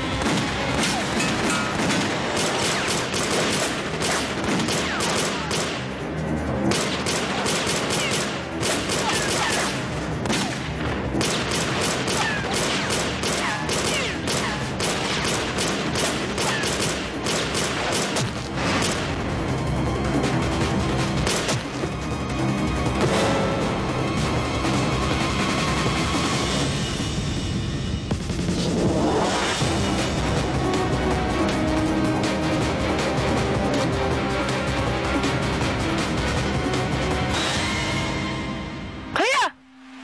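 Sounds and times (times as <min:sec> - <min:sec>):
background music: 0:00.0 - 0:40.0
rapid gunfire: 0:00.1 - 0:06.0, 0:06.6 - 0:19.2, 0:21.2 - 0:21.7.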